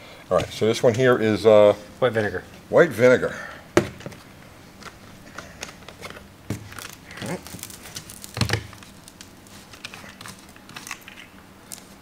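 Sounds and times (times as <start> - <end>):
plastic jug crinkling: 4.8 - 12.0.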